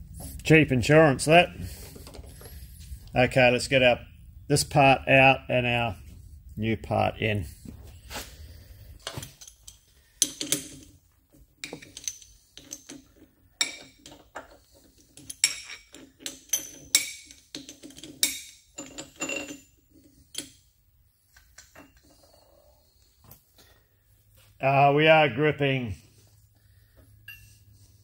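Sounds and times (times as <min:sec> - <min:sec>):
steel parts clinking: 0:09.0 - 0:11.0, 0:11.6 - 0:20.6.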